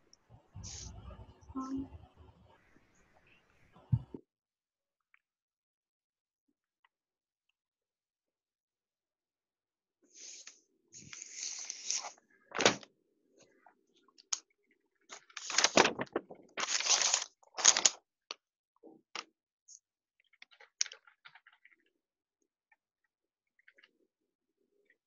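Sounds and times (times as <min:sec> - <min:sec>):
rustling: 0:15.1 - 0:18.0.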